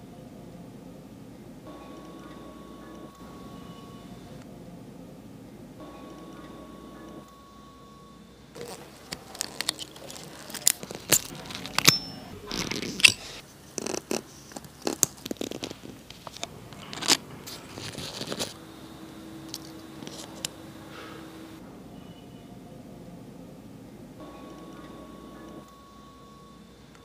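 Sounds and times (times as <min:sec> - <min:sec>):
tools scraping watch parts: 0:08.6 - 0:18.6.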